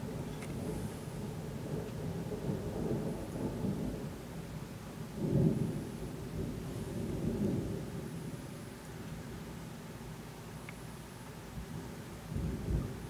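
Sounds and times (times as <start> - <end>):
rolling thunder: 0.0 - 4.3, 5.0 - 8.6, 11.7 - 13.0
rain falling: 0.0 - 13.0.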